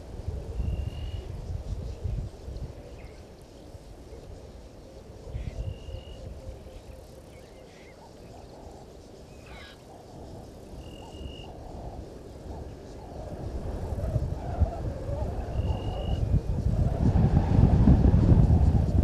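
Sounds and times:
wind rumble on microphone: 0.0 - 19.0
frogs calling: 5.2 - 16.4.

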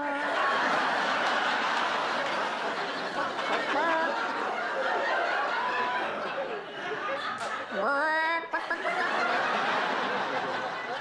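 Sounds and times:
studio audience laughing: 0.0 - 7.9, 8.5 - 11.0.

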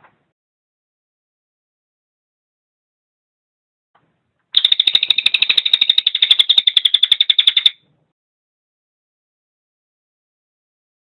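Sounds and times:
bird rattling call: 4.6 - 7.8.

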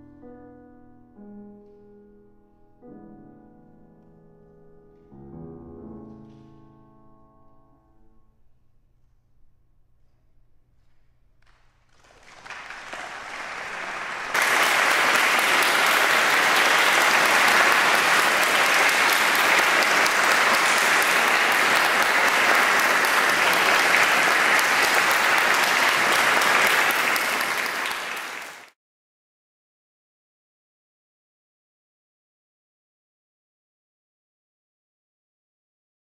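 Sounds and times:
audience applauding: 11.4 - 28.8.

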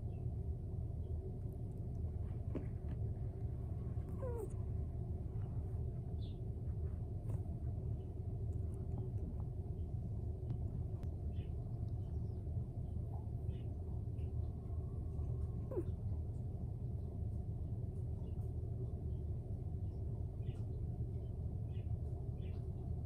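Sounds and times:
steady low rumble: 0.0 - 23.0
cat chirping: 3.8 - 4.8, 15.7 - 16.0.

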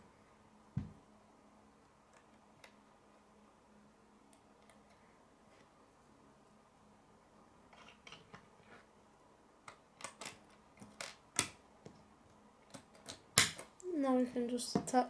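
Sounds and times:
plastic pieces snapping together: 9.7 - 11.6, 12.7 - 13.8.

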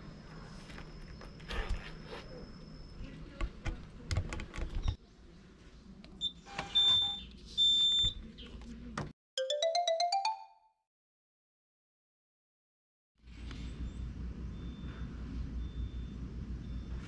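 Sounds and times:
vending machine beeping: 6.2 - 8.2.

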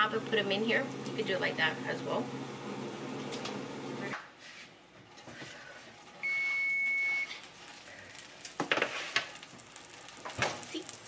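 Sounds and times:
oven control panel beep: 6.2 - 7.4.

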